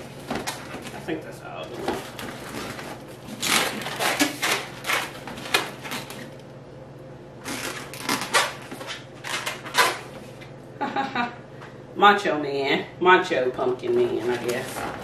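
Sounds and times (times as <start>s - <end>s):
balloons squeaking and rubbing: 1.8s - 6.2s, 7.4s - 8.6s.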